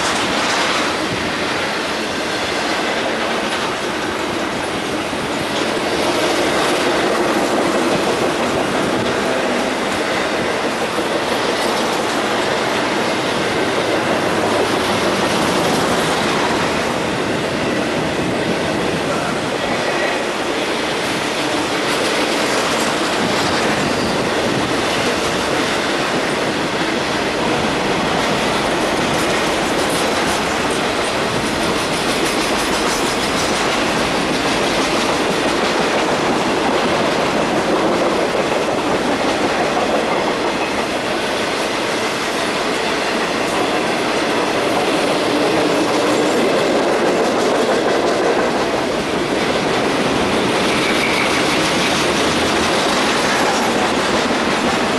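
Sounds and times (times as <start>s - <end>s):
freight train wheels on rails: 0.0s - 54.9s.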